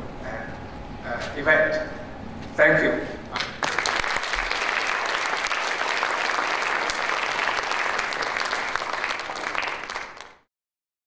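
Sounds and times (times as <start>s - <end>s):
audience applauding: 3.4s - 10.5s.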